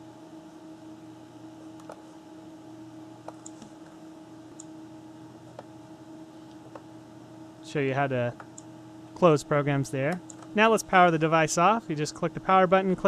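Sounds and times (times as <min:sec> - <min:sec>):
electrical hum: 0:00.0 - 0:13.0
keyboard clicks: 0:03.3 - 0:03.8, 0:10.1 - 0:10.6.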